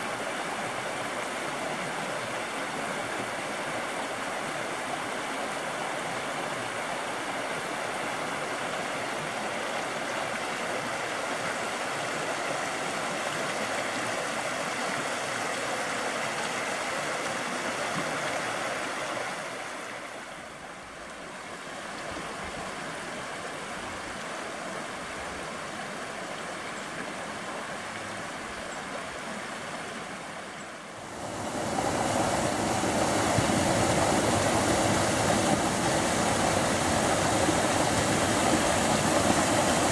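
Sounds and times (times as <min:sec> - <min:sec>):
creek rushing over rocks: 0:00.0 - 0:39.9
small waterfall into pool: 0:00.0 - 0:39.9.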